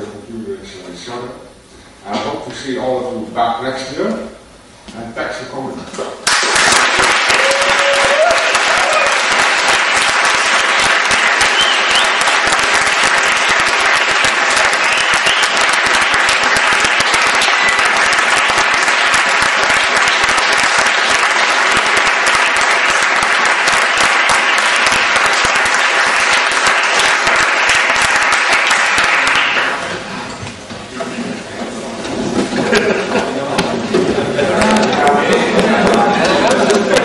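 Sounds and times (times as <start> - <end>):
audience applauding: 6.2 - 30.0, 34.3 - 37.0.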